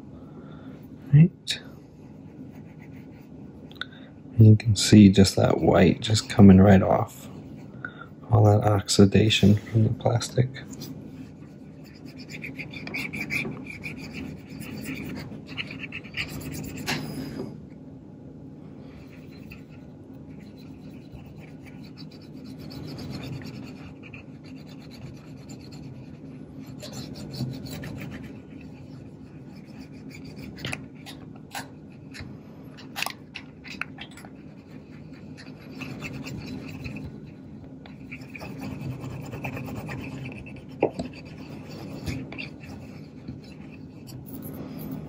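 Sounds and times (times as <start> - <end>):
rubbing on plastic camera body: 10.7 - 17.1, 19.0 - 45.0.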